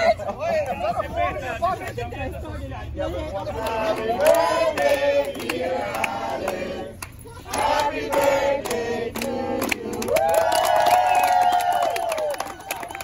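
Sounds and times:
group chanting in rhythm: 3.6 - 6.9, 7.5 - 10.2
people clapping: 3.6 - 13.0
crowd cheering: 9.9 - 13.0.

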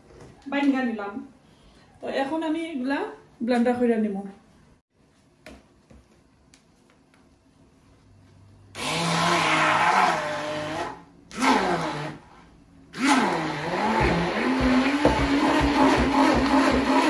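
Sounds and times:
immersion blender grinding paste: 8.8 - 12.2, 13.0 - 17.0.

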